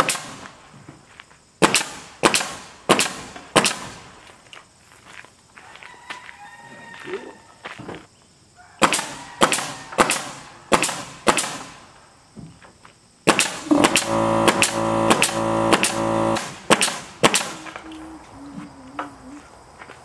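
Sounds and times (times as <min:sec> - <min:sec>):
nail gun shots: 0:00.0 - 0:00.5, 0:01.6 - 0:04.0, 0:08.8 - 0:11.8, 0:13.2 - 0:17.8
air compressor running: 0:13.6 - 0:17.5.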